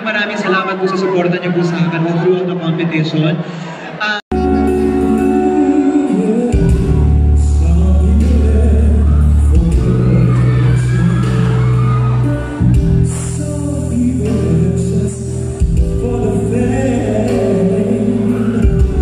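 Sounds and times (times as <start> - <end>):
amplified backing music: 4.3 - 19.0
man singing into microphone: 4.3 - 19.0
strong bass: 4.3 - 19.0.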